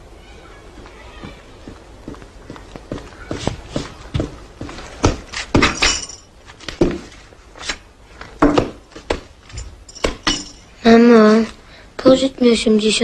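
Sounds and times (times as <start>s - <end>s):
dishes clinking on a table: 9.6s - 10.7s.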